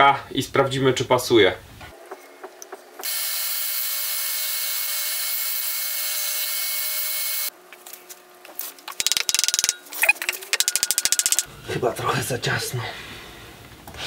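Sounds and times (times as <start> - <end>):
scraping clicks of wooden hub: 9.0 - 11.5.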